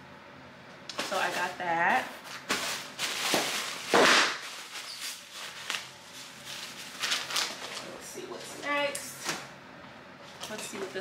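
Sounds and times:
plastic packaging crinkling: 1.0s - 8.5s.

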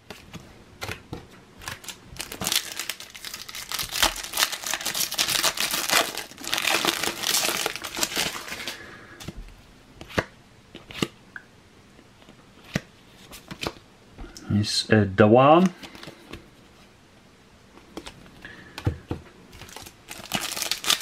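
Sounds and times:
foil wrapper tearing and crinkling: 1.6s - 8.8s, 19.6s - 21.0s.

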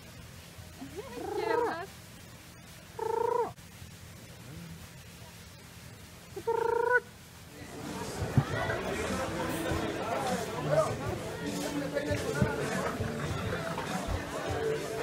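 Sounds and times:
parrot calling: 3.0s - 3.6s, 6.4s - 7.1s.

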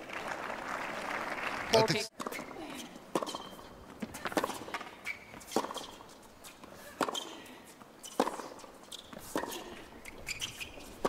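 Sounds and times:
tennis ball hits and bounces: 2.1s - 2.5s, 3.1s - 7.3s, 8.0s - 11.0s.

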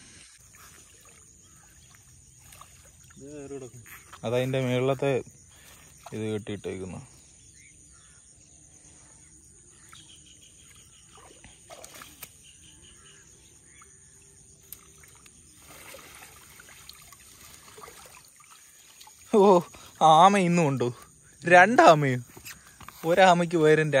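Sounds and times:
water trickling and sloshing: 0.4s - 6.8s, 9.8s - 21.3s.

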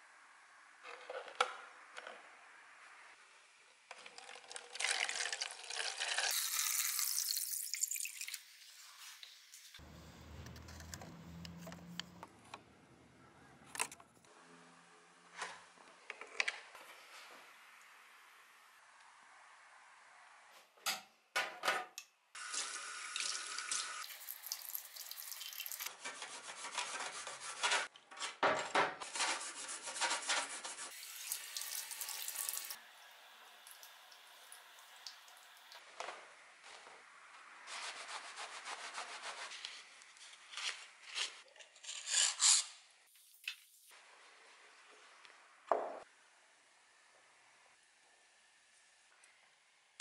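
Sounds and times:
tap water running into sink: 22.4s - 25.9s, 30.9s - 35.8s.

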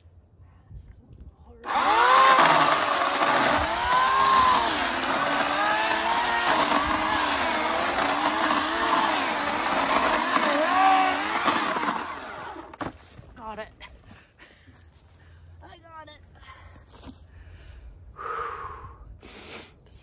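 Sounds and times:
electric chainsaw cutting wood: 1.6s - 13.0s.

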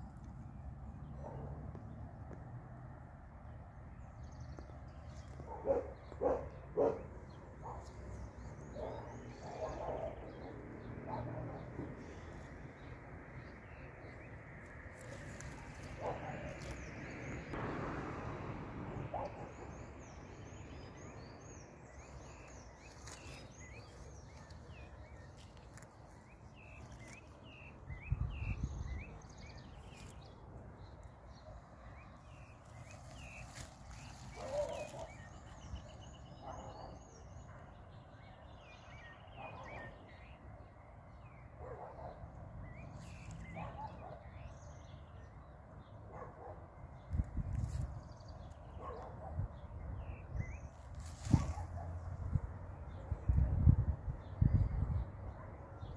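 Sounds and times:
small birds chirping: 3.6s - 17.6s, 19.1s - 41.1s, 41.7s - 46.0s.

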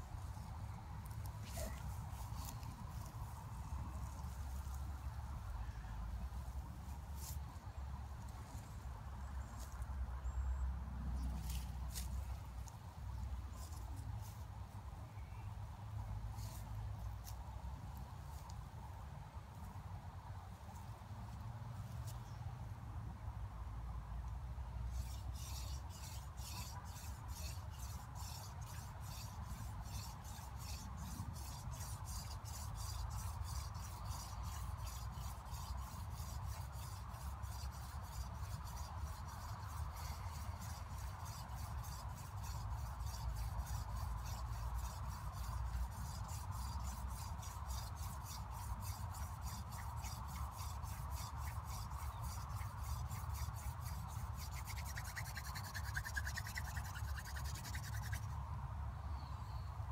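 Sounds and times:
wooden spindle rasping in hearth board: 24.9s - 58.2s.

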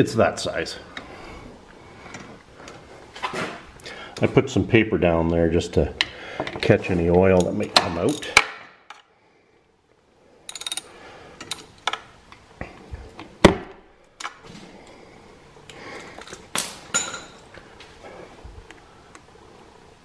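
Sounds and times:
tools clinking on metal: 10.5s - 12.0s, 16.2s - 17.5s.

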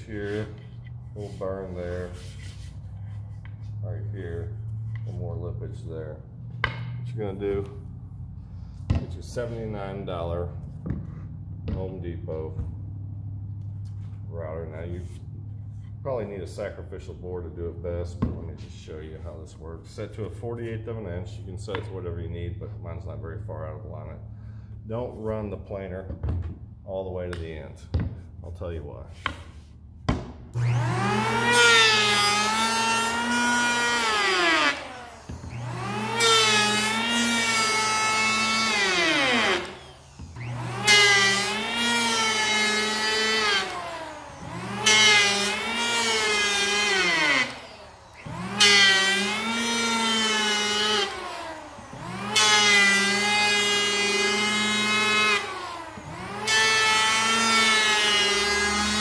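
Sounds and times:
electric hand planer cutting wood: 0.0s - 2.7s, 30.5s - 59.0s.

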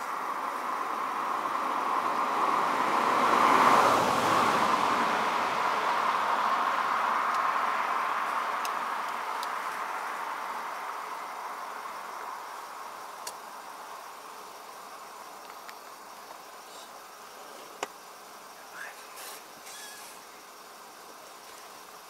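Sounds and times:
car passing: 0.0s - 15.3s.

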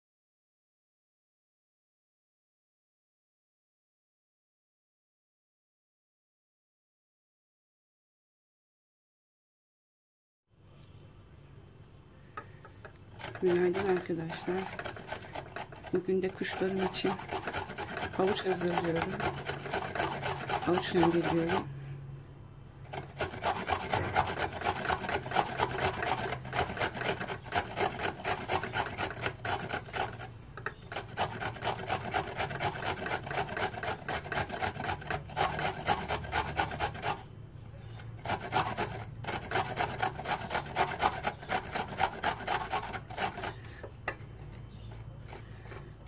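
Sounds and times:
carrot rasping on metal grater: 13.2s - 21.7s, 22.9s - 43.9s, 44.8s - 46.0s.

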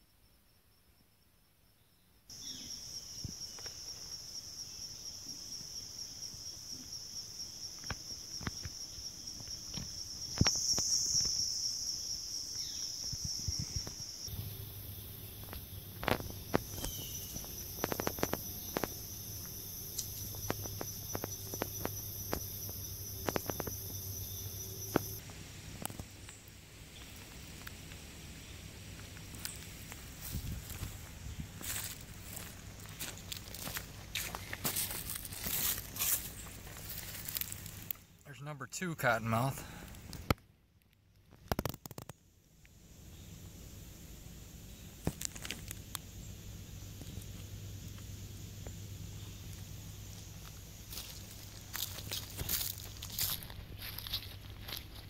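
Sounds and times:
insects trilling: 0.0s - 40.4s, 41.1s - 55.0s
footsteps in dry leaves and gravel: 15.4s - 24.2s, 29.0s - 38.0s, 50.1s - 55.0s.

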